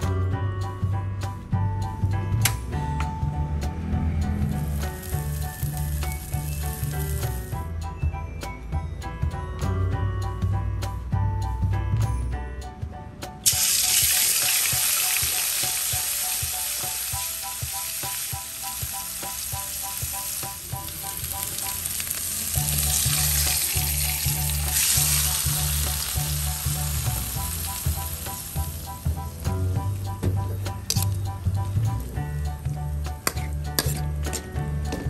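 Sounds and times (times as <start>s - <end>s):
oil sizzling in a wok: 4.3s - 7.6s, 13.4s - 30.0s.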